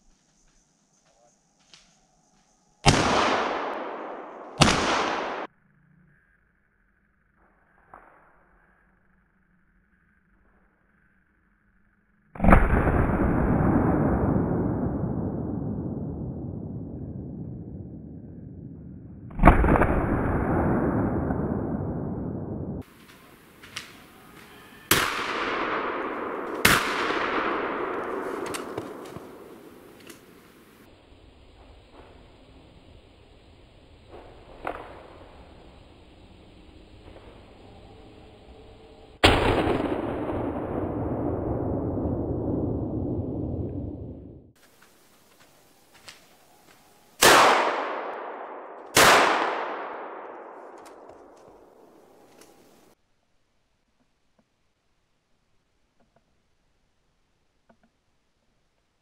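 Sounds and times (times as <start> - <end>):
gunshots echoing: 2.8 - 5.5, 19.3 - 30.8, 39.2 - 41.6, 47.2 - 52.9.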